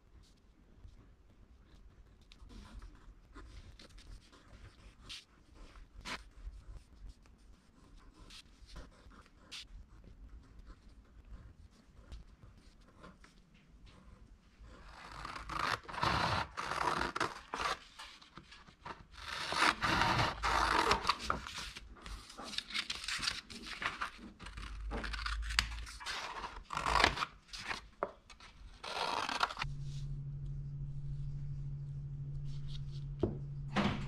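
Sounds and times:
pen scratching on paper: 1.6s - 22.6s
scissors cutting paper: 14.8s - 29.7s
paper rustling: 14.8s - 30.1s.

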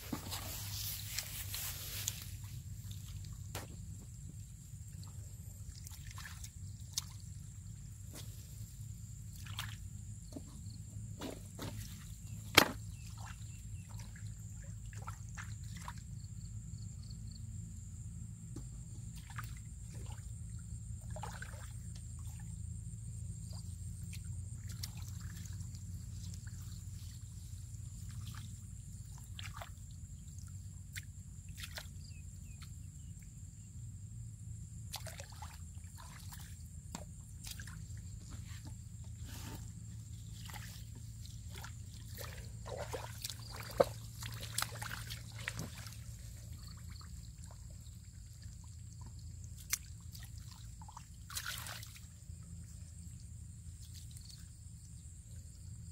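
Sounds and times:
hands splashing in muddy water: 4.9s - 7.4s, 9.3s - 9.8s, 21.0s - 22.4s, 24.0s - 27.3s, 34.9s - 38.7s, 39.3s - 52.4s.

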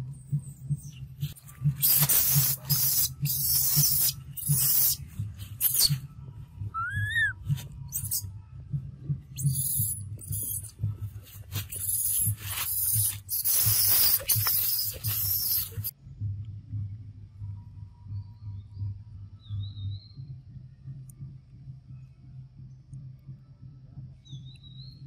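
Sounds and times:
dry leaves rustling and crackling: 1.3s - 4.7s, 11.2s - 15.9s
short high squeak: 5.6s - 6.0s, 9.4s - 10.7s, 11.7s - 15.9s.

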